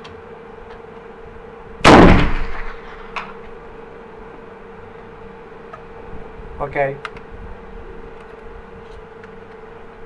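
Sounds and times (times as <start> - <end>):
rifle shot: 1.8 - 3.2.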